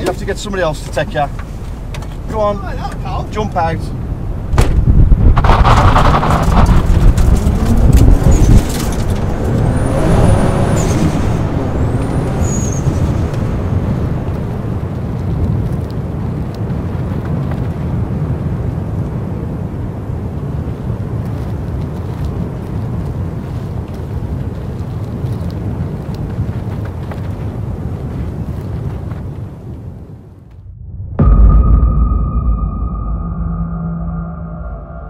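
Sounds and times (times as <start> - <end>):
car engine accelerating: 5.4 - 14.8.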